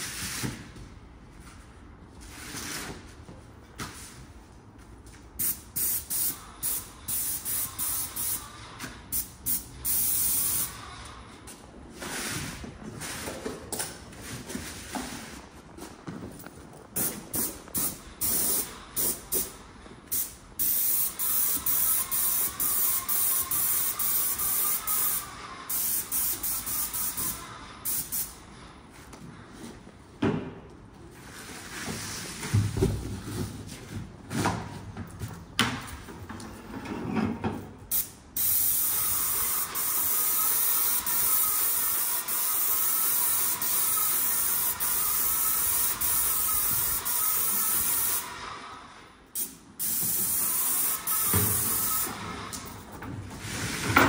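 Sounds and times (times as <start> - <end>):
paint sprayer hissing: 5.4 - 10.9, 17.0 - 28.4, 37.9 - 48.6, 49.4 - 52.8.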